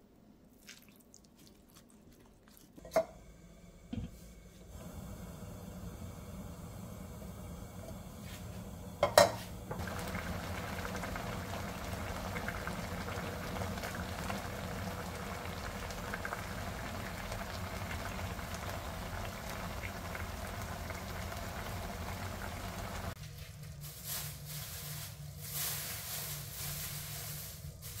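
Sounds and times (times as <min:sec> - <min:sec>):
sauce crackling: 0:00.5 - 0:02.9, 0:09.7 - 0:23.2
liquid bubbling in a pan: 0:00.6 - 0:23.2.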